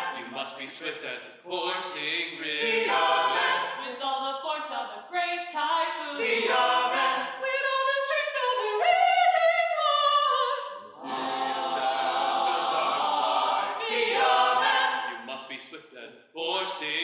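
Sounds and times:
mixed voices singing a chord: 2.5s - 3.9s, 6.2s - 7.4s, 10.9s - 15.3s.

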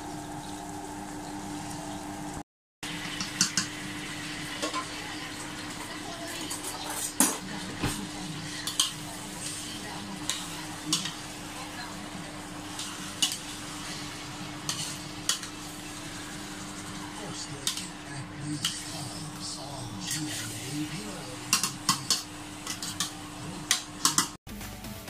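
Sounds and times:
low sizzle: 0.0s - 24.4s
metal spoon scraping a pot: 14.7s - 16.3s, 21.5s - 23.2s.

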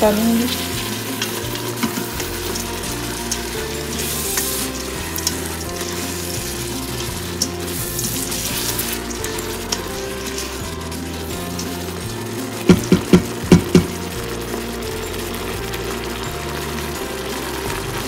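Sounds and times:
low background music: 0.0s - 18.0s
rice sizzling in oil: 0.0s - 18.0s
spatula scraping a pot: 0.5s - 14.0s.

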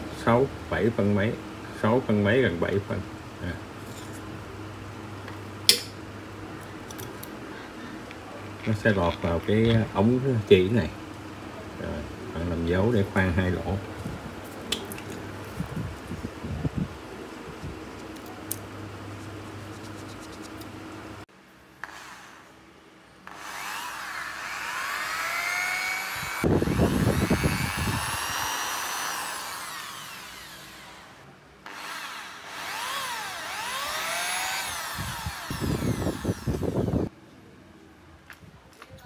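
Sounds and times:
drill bit grinding into steel: 23.3s - 37.1s
drill press motor whine: 23.3s - 37.1s.

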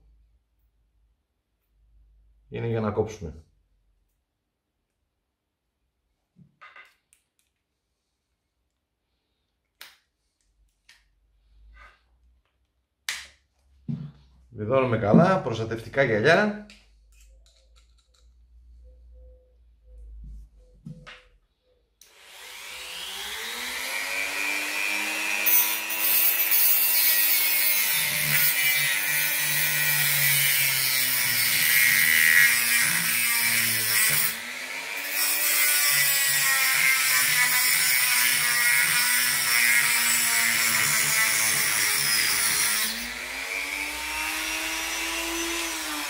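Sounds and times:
cut-off disc grinding metal: 22.1s - 46.0s.

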